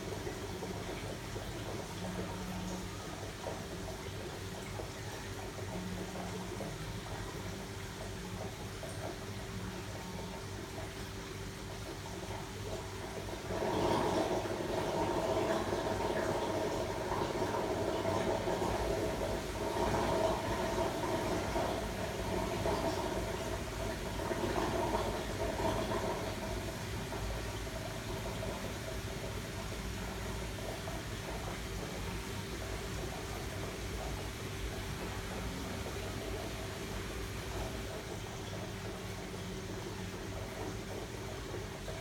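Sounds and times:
aquarium pump hum: 0.0 - 42.0.

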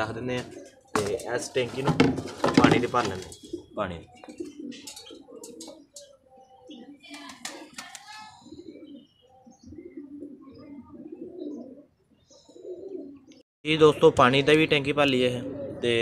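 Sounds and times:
pigeons cooing: 0.0 - 13.4, 14.0 - 16.0.

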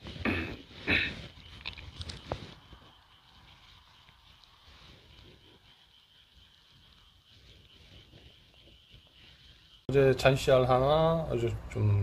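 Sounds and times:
faint outdoor background: 0.0 - 12.0
handling clicks and rustles: 1.0 - 5.2.

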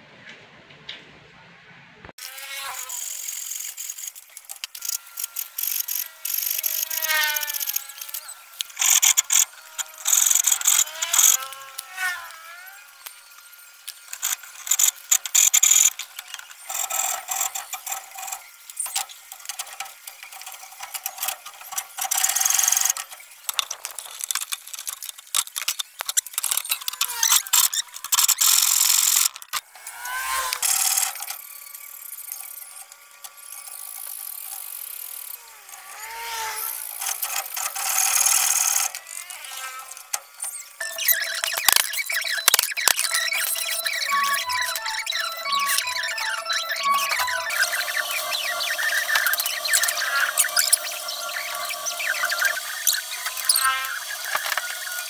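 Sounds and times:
short high squeals: 4.8 - 23.4, 33.5 - 55.0.

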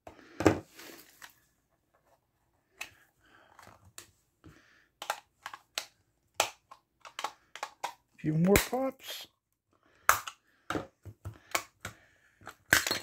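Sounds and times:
plastic shell clicking and rubbing: 5.0 - 8.8
plastic clips cracking: 5.0 - 8.9.

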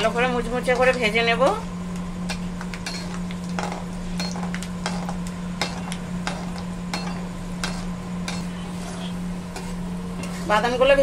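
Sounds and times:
spatula scraping pan: 2.9 - 11.0.

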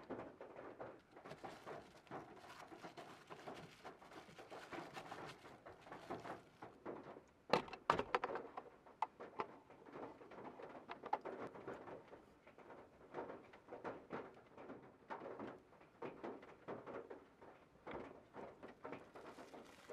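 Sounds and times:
plastic wrap crinkling: 0.9 - 7.1, 19.0 - 19.9
plastic lid clicks and knocks: 7.5 - 9.6, 10.8 - 11.8.

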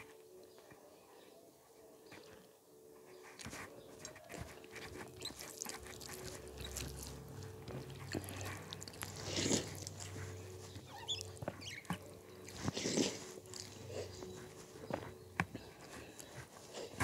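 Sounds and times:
fingers squishing food: 3.1 - 17.0
chewing with mouth clicks: 3.4 - 17.0.

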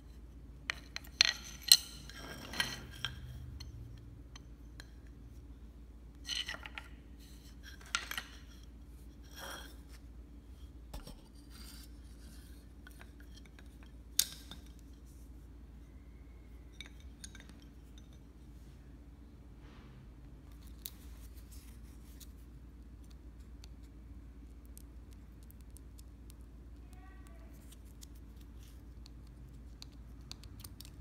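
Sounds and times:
tools clicking and scraping: 0.7 - 5.2, 6.2 - 10.0.

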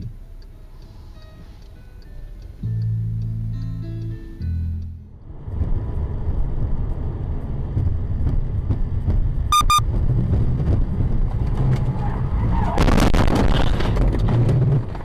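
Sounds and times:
car road rumble on wet road: 5.2 - 15.0
short electronic beeps: 9.5 - 9.8.

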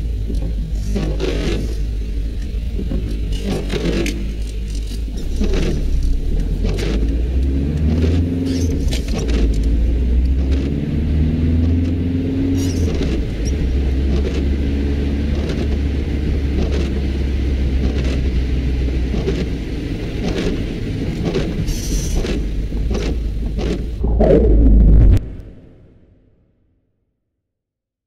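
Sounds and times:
engine and road rumble: 0.0 - 25.8
windscreen wipers swishing: 5.1 - 24.0
humming tone: 24.0 - 25.8.

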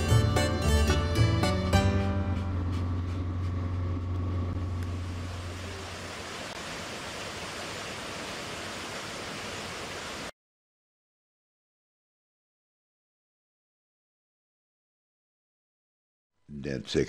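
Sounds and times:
background music: 0.0 - 3.0
waterfall rushing: 5.2 - 10.3.

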